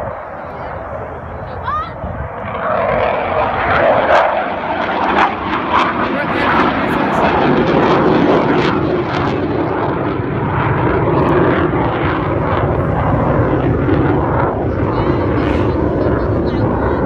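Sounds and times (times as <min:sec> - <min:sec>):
jet engine flying past: 0:00.0 - 0:17.0.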